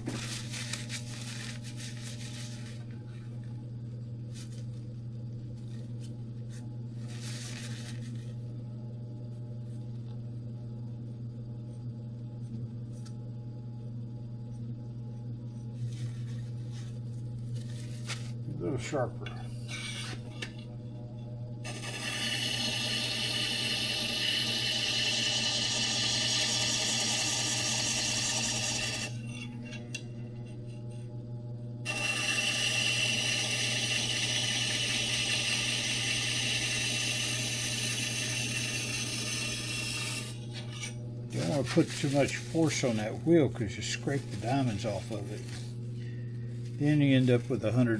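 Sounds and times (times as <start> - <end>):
grinder motor humming: 21.6 - 31.0, 31.8 - 47.9
blade grinding on wheel: 21.7 - 29.6.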